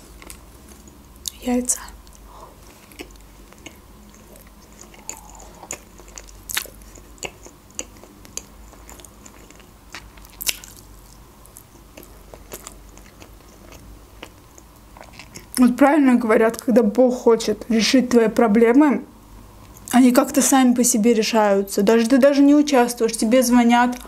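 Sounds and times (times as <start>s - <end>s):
person chewing wet mouth smacks: 2.9s - 15.6s.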